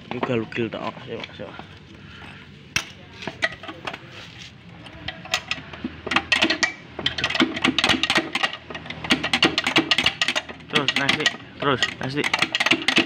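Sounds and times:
wrench clicking on bolt: 0:05.3 - 0:13.0.

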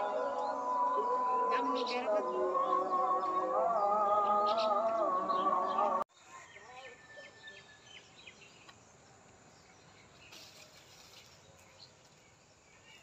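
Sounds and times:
soft rustle: 0:10.3 - 0:12.3.

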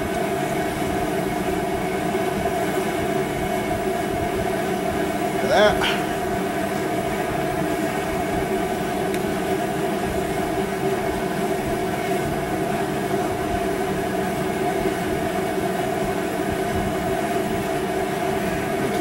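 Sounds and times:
steady mechanical drone: 0:00.0 - 0:19.0.

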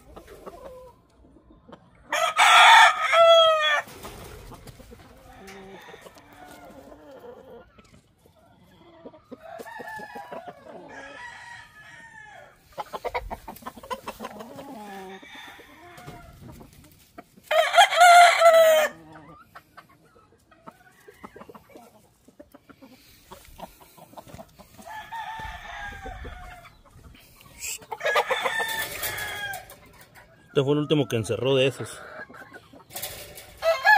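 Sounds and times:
chickens clucking: 0:00.0 - 0:33.9
roosters crowing: 0:02.1 - 0:07.7, 0:09.2 - 0:16.7, 0:17.4 - 0:19.4, 0:23.0 - 0:33.9.

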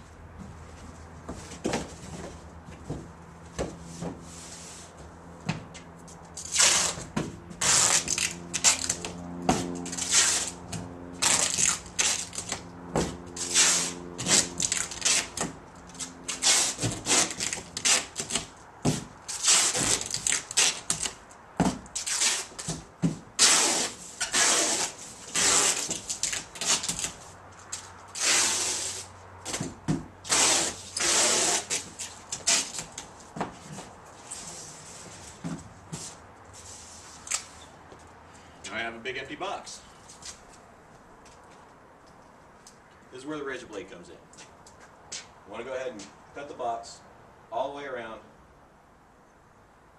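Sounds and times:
tape rubbed onto cardboard box: 0:03.9 - 0:05.0, 0:06.4 - 0:09.2, 0:09.8 - 0:10.6, 0:11.2 - 0:12.6, 0:13.3 - 0:18.5, 0:19.3 - 0:21.2, 0:22.0 - 0:22.8, 0:23.4 - 0:29.2, 0:30.2 - 0:33.1, 0:34.2 - 0:37.6
packing tape pulled off roll: 0:06.4 - 0:07.0, 0:07.6 - 0:09.1, 0:09.9 - 0:10.5, 0:11.2 - 0:12.6, 0:13.4 - 0:15.5, 0:16.3 - 0:18.5, 0:19.3 - 0:21.2, 0:22.0 - 0:22.7, 0:23.4 - 0:27.2, 0:28.2 - 0:29.0, 0:30.2 - 0:33.0.

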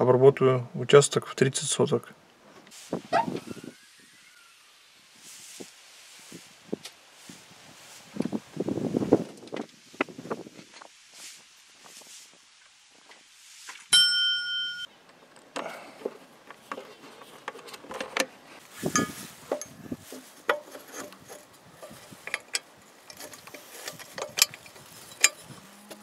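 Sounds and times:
ringing metal clang: 0:13.9 - 0:14.9, 0:18.9 - 0:19.8
metal clicks and rattles: 0:20.5 - 0:25.5.

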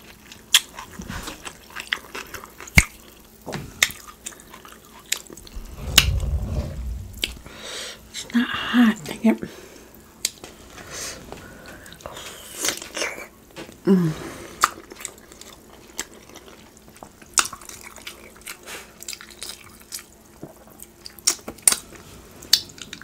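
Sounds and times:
short falling hum: 0:05.4 - 0:07.7.

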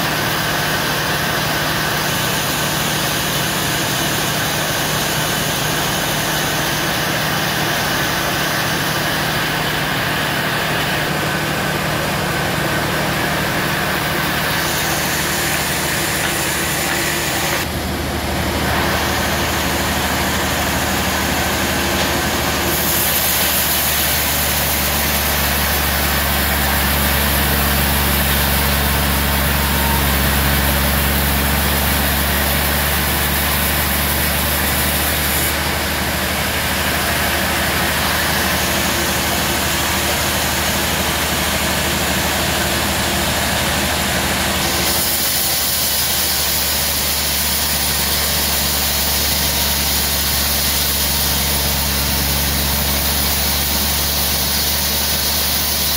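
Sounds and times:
band saw motor humming: 0:00.0 - 0:55.9
saw blade hissing through log: 0:13.3 - 0:17.7, 0:18.8 - 0:40.6, 0:44.6 - 0:55.9.

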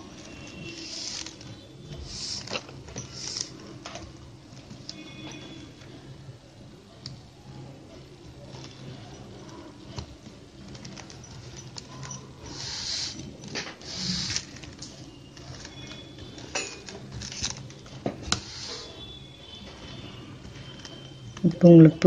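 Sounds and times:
plastic wire rustling and scraping: 0:08.4 - 0:18.9.

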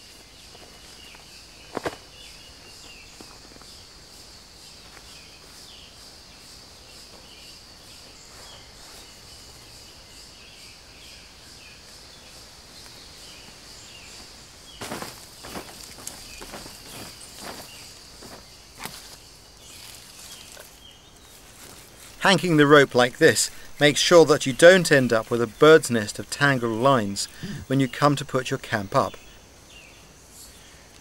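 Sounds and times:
camp gear rustling and knocking: 0:00.0 - 0:03.8, 0:13.3 - 0:25.6
insects buzzing and chirping: 0:00.0 - 0:31.0.

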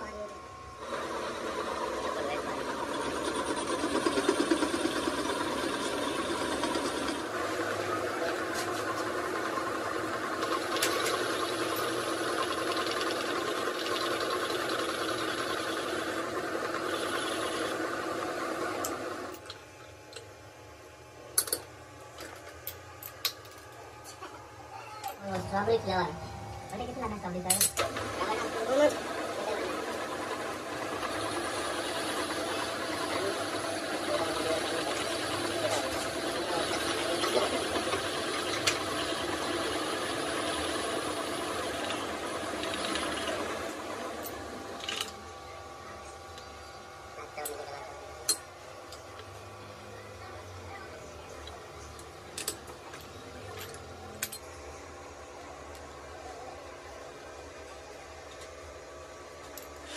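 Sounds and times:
metal lathe cutting metal: 0:00.8 - 0:19.4, 0:26.7 - 0:45.1.

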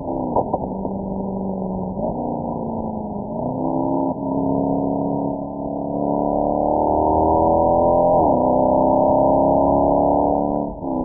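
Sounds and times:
car exhaust drone: 0:00.0 - 0:06.5.

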